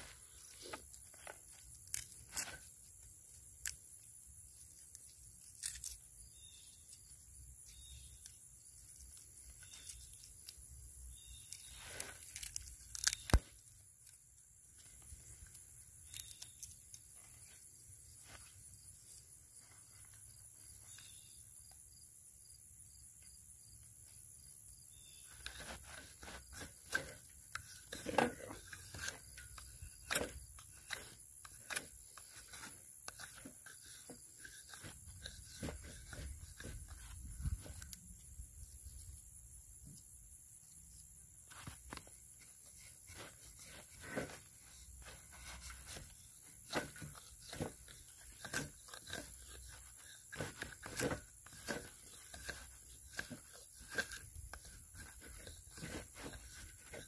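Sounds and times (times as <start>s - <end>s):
wood fibres cracking: 0.0s - 6.2s, 8.1s - 18.4s, 25.3s - 38.4s, 41.4s - 57.0s
knife scraping wood: 0.0s - 14.2s, 24.9s - 39.0s, 41.0s - 57.0s.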